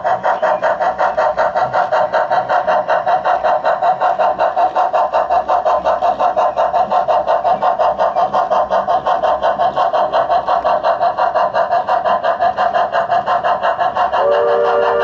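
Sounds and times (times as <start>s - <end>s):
steam locomotive chuffing: 0.0s - 15.0s.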